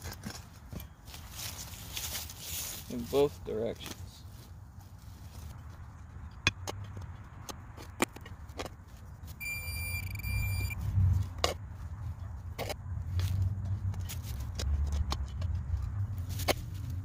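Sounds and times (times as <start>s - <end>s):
clicks and knocks of digging turf: 0.0s - 6.0s, 11.0s - 17.0s
metal detector buzzing alert: 9.4s - 10.8s.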